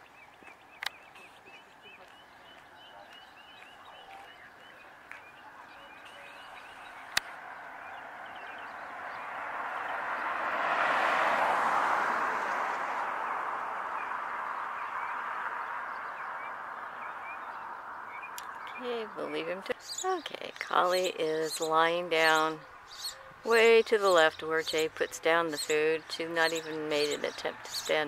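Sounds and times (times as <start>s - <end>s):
bird chirping: 0.0s - 10.4s, 13.3s - 28.0s
vehicle tyre noise: 6.2s - 18.4s.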